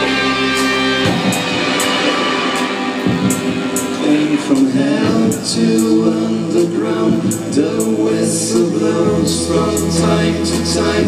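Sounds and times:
drums with cymbal strokes: 0.0s - 11.0s
electric guitars: 0.0s - 11.0s
keyboard: 0.0s - 11.0s
man singing: 3.9s - 11.0s.

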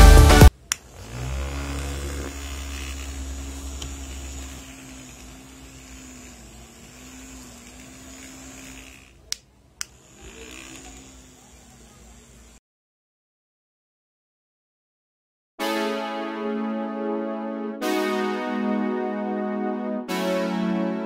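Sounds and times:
small motor humming: 0.4s - 12.6s.

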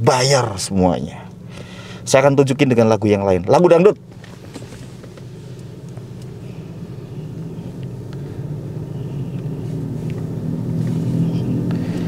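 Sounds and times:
deep bass music from car speakers: 6.0s - 12.0s.

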